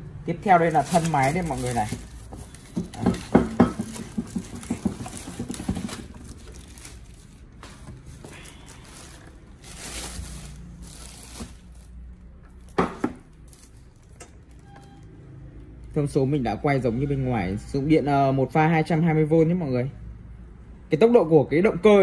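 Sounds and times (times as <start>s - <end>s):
plastic wrapping crinkling: 0.4s - 14.7s.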